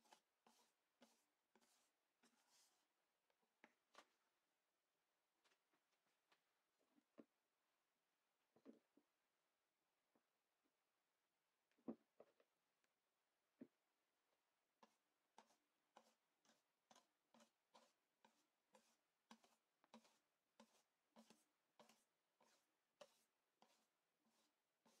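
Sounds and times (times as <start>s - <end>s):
whisk scraping and tapping bowl: 15.4s - 25.0s.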